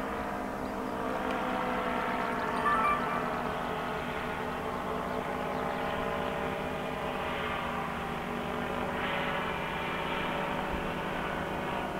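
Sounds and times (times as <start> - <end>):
drone-like music chords: 2.3 - 4.6.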